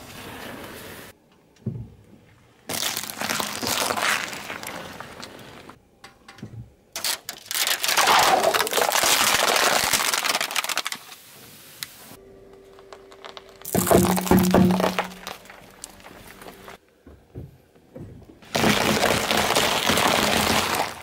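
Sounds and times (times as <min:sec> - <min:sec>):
hard candy cracking under tyre: 0:02.7 - 0:05.8, 0:06.9 - 0:11.2, 0:12.7 - 0:16.8, 0:18.4 - 0:21.0
plastic cup crackling under tyre: 0:02.7 - 0:05.8, 0:07.0 - 0:11.2, 0:12.7 - 0:16.8, 0:18.4 - 0:21.0.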